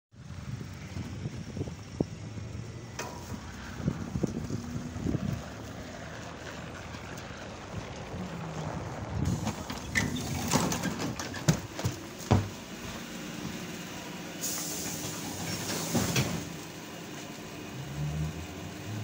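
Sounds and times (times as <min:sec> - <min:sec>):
trolleybus interior rumble: 0:00.1 - 0:19.0
body knocks and rattles: 0:09.7 - 0:12.6.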